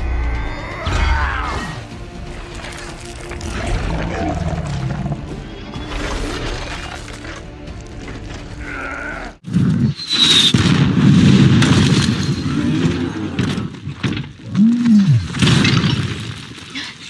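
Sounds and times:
rumbling and crashing debris: 0:09.5 - 0:17.0.

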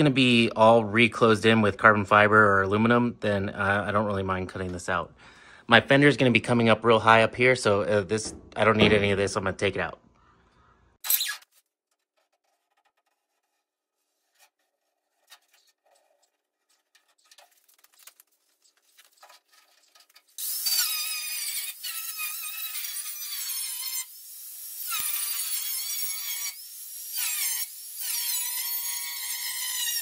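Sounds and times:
masking tape rustling and clicking: 0:11.0 - 0:20.9
angle grinder cutting sheet metal: 0:20.4 - 0:30.0.

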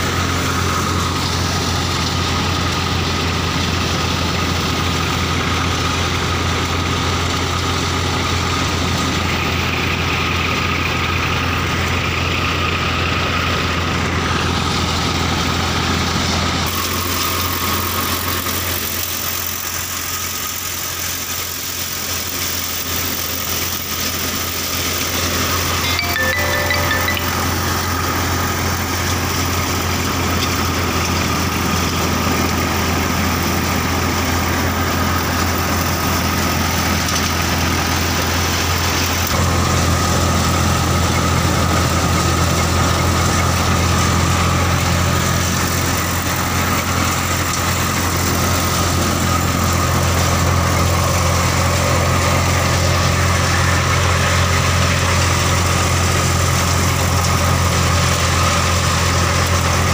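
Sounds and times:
tractor diesel engine running: 0:00.0 - 0:59.9
threshing machine droning: 0:16.6 - 0:25.8.

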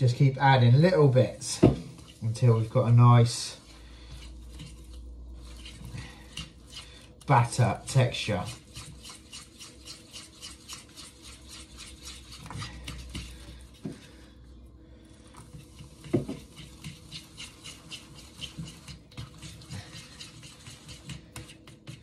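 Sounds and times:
whisk scraping metal bowl: 0:00.0 - 0:14.5, 0:15.2 - 0:22.0.

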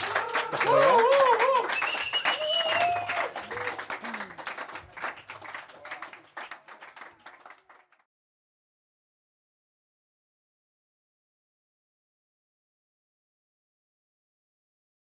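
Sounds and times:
cheering whoops and shouts: 0:00.0 - 0:04.4
audience clapping: 0:00.0 - 0:08.1.

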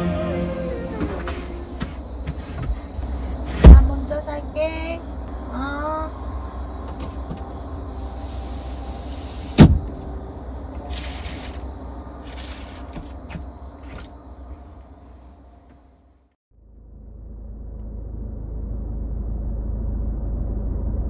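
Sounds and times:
steady low hum: 0:00.0 - 0:21.0
heavy thump: 0:03.5 - 0:04.0.

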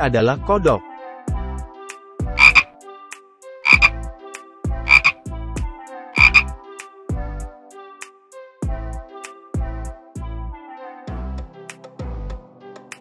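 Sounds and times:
frog croaking: 0:02.4 - 0:02.7, 0:03.6 - 0:04.0, 0:04.9 - 0:05.2, 0:06.2 - 0:06.5.

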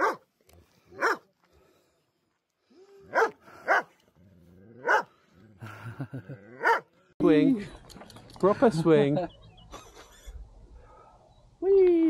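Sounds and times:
dog barking: 0:00.0 - 0:00.3, 0:01.0 - 0:01.3, 0:03.1 - 0:03.9, 0:04.8 - 0:05.1, 0:06.6 - 0:06.9.

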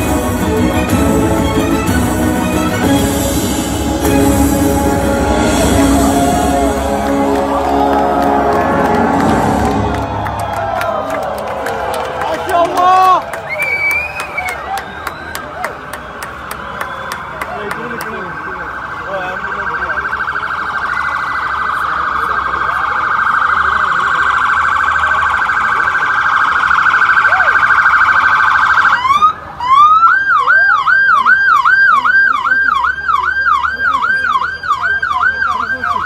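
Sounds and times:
electronic siren wailing and yelping: 0:19.2 - 0:36.0.

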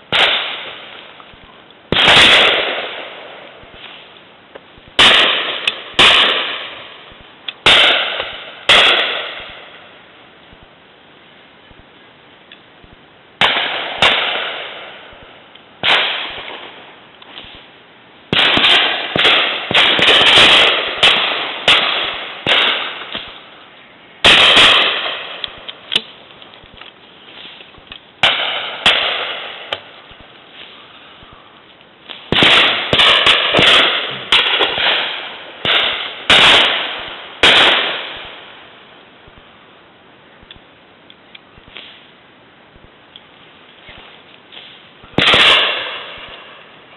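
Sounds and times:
shotgun shots: 0:00.1 - 0:00.9, 0:01.9 - 0:03.3, 0:05.0 - 0:06.9, 0:07.6 - 0:09.8, 0:13.4 - 0:15.2, 0:15.8 - 0:16.7, 0:18.3 - 0:23.4, 0:24.2 - 0:26.1, 0:28.2 - 0:29.9, 0:32.2 - 0:38.6, 0:45.2 - 0:46.6.

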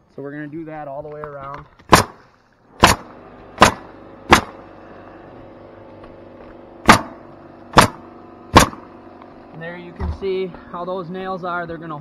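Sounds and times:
pneumatic nailer firing: 0:01.8 - 0:05.0, 0:06.8 - 0:09.4.

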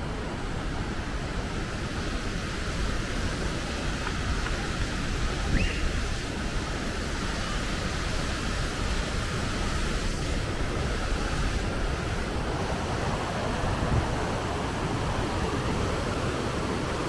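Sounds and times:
water rushing: 0:00.0 - 0:17.0
faint high chirp: 0:05.5 - 0:05.9.

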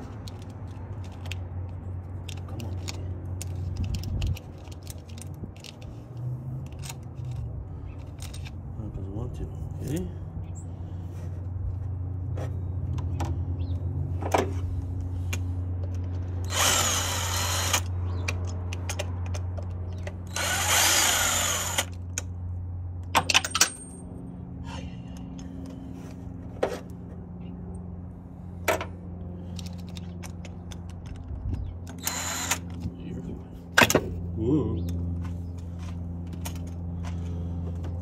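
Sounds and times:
cordless drill spinning: 0:16.4 - 0:17.9, 0:20.3 - 0:22.0, 0:31.9 - 0:32.7.

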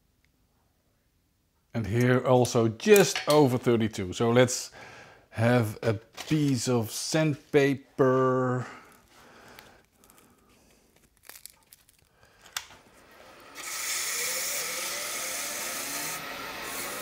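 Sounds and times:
sandpaper rustling and clicks: 0:08.9 - 0:12.6
sandpaper hissing on spinning wood: 0:13.8 - 0:17.0.

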